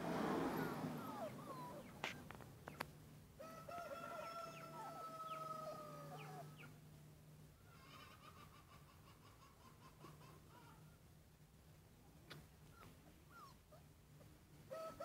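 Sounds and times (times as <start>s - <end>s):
faint rooster crowing: 3.4s - 6.7s, 14.7s - 15.0s.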